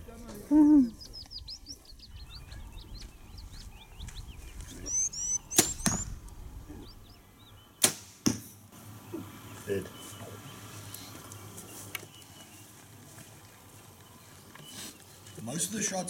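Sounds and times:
arrow hitting target: 0:05.5 - 0:06.1, 0:07.8 - 0:08.6.

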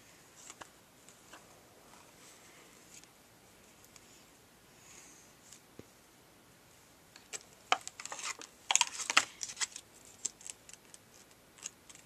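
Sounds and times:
plastic packaging crinkling and clicking: 0:07.2 - 0:12.0.

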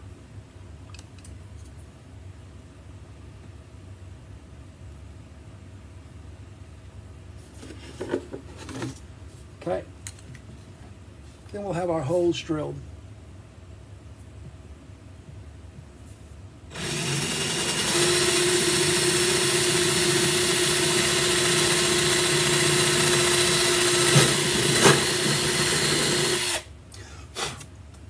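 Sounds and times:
cordless drill boring wood: 0:16.7 - 0:26.7.

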